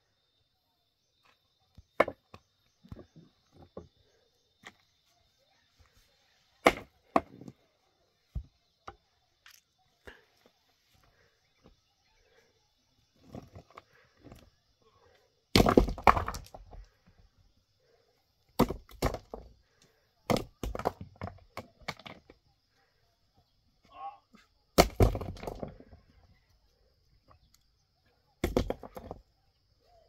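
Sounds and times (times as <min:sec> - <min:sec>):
rock fragments clattering: 0:15.5 - 0:16.8
cracking blows on stone: 0:15.5 - 0:16.9, 0:28.4 - 0:29.2.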